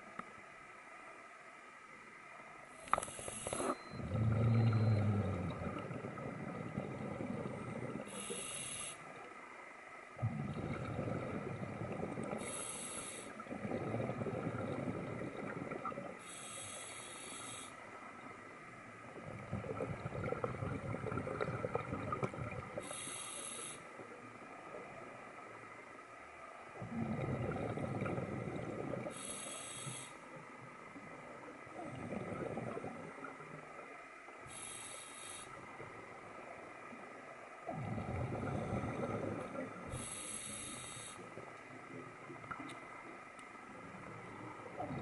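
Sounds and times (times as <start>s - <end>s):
inhale hiss through regulator: 2.8s - 3.8s, 7.8s - 9.3s, 12.2s - 13.5s, 16.2s - 18.0s, 22.6s - 24.2s, 28.9s - 30.4s, 34.4s - 35.9s, 38.4s - 41.5s
burble of exhaled bubbles: 3.9s - 8.1s, 10.2s - 12.5s, 13.4s - 16.2s, 19.1s - 22.9s, 26.7s - 29.2s, 31.6s - 33.8s, 37.6s - 40.1s, 43.8s - 45.0s.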